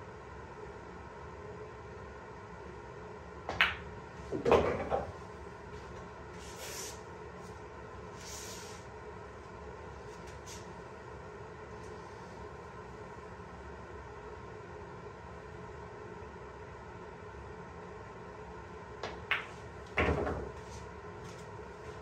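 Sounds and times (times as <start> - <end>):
pool balls clattering: 3.6 - 5.2, 19.0 - 20.7.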